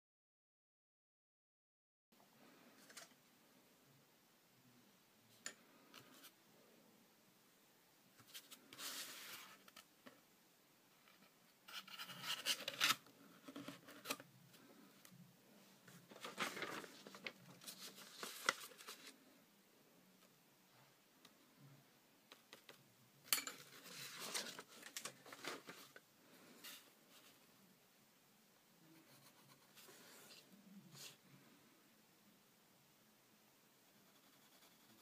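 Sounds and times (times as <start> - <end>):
cardboard and paper rustling: 15.9 - 19.2, 23.7 - 27.4.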